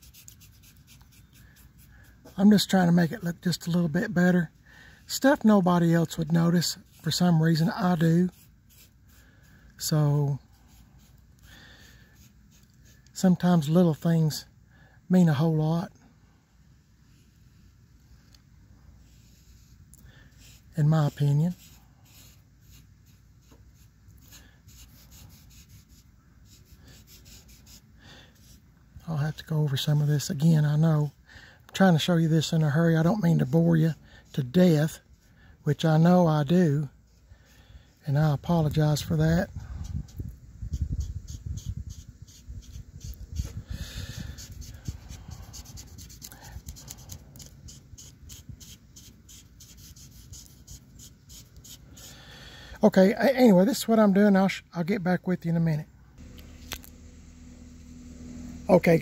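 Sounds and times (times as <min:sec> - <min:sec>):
paint marker tip rubbing: 0:00.0 - 0:02.4, 0:06.1 - 0:09.5, 0:10.4 - 0:13.2, 0:19.1 - 0:28.6, 0:39.8 - 0:52.1.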